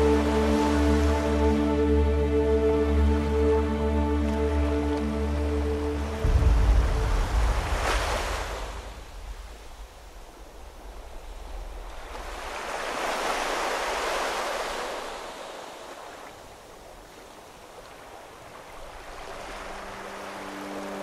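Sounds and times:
waves breaking on rocks: 6.2s - 21.0s.

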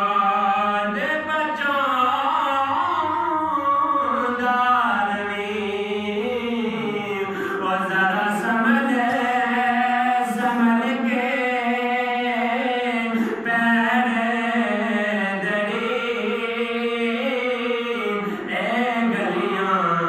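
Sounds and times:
man singing unaccompanied: 0.0s - 20.0s
short breaths: 7.2s - 7.6s.

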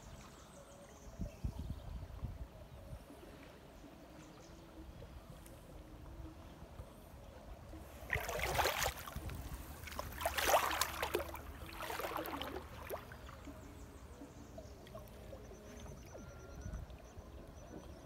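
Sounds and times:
water splashing around wading legs: 7.9s - 13.8s.

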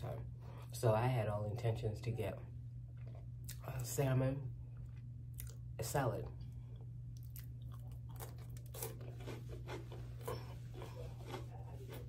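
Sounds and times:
steady low hum: 0.0s - 12.0s
person chewing crisp bread: 2.8s - 3.6s, 4.6s - 5.7s, 6.4s - 12.0s.

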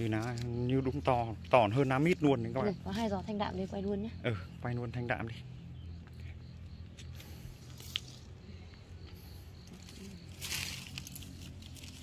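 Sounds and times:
rustling among plants: 9.0s - 12.0s.

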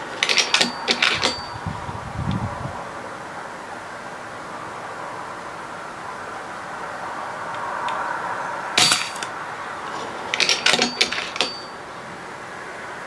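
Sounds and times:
mechanical clicks and knocks: 0.2s - 1.5s, 10.3s - 11.7s.

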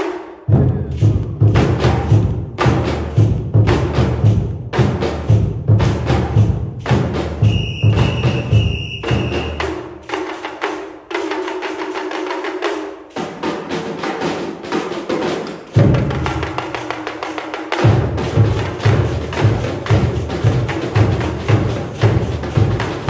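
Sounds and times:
pitched percussion notes ringing: 0.0s - 23.0s
rapid snare drum strokes: 0.0s - 23.0s
high held tone: 7.4s - 10.1s.

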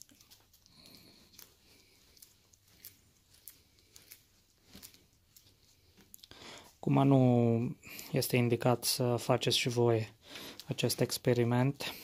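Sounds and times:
faint rustling: 0.0s - 6.8s.

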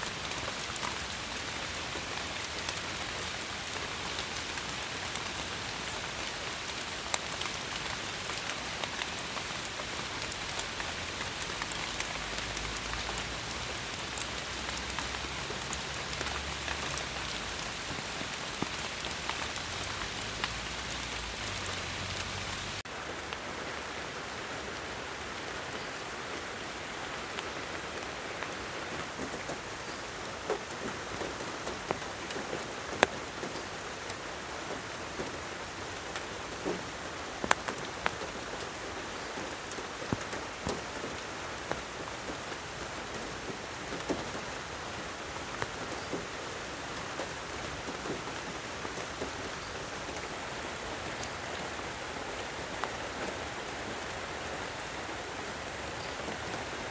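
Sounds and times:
single raindrops ticking: 0.0s - 22.8s
rain falling on leaves: 0.0s - 56.9s.

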